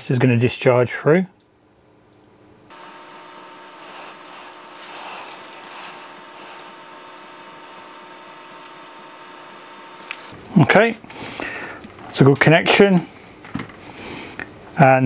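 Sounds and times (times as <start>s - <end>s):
copper wire scraping and rustling: 3.0s - 10.4s.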